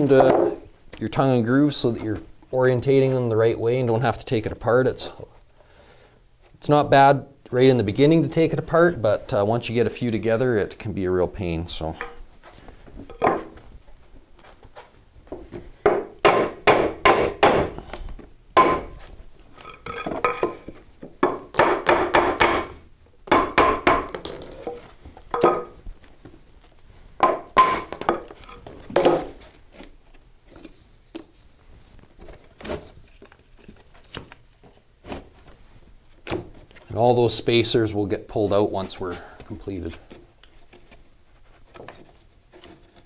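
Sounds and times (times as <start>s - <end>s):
hammer striking wooden block: 15.8s - 17.8s, 18.6s - 19.0s, 21.2s - 24.3s, 27.2s - 28.3s.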